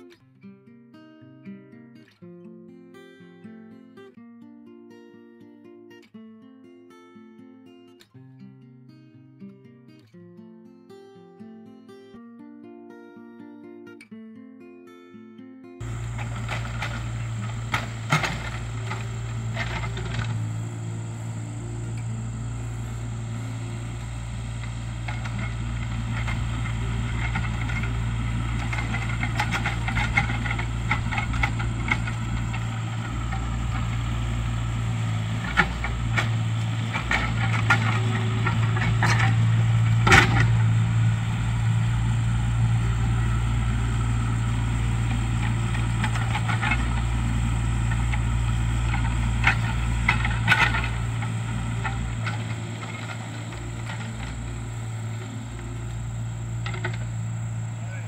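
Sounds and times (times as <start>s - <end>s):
excavator bucket knocks and clanks: 15.8s - 20.6s, 35.2s - 41.0s
diesel engine running: 15.8s - 58.0s.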